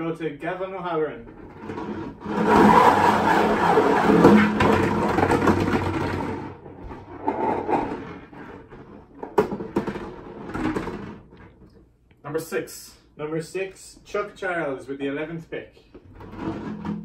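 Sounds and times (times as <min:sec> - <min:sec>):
balls rattling in plastic jug: 0:04.2 - 0:11.8.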